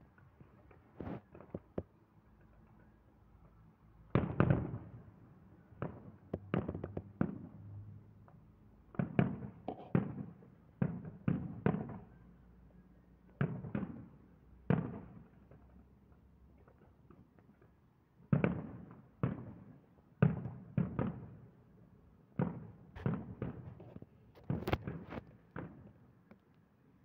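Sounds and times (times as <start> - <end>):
fireworks bursting with echoes: 4.2 - 5.1, 18.3 - 21.5, 22.3 - 26.0.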